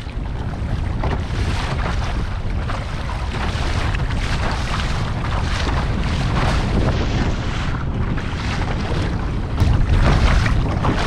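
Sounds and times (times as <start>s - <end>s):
waves splashing against kayak hull: 0.0s - 11.0s
wind buffeting microphone: 0.0s - 11.0s.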